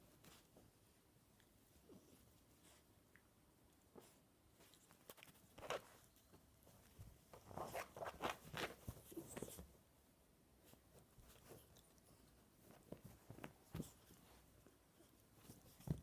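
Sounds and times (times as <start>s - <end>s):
puppy scrabbling on fabric: 4.0s - 9.8s, 10.6s - 16.0s.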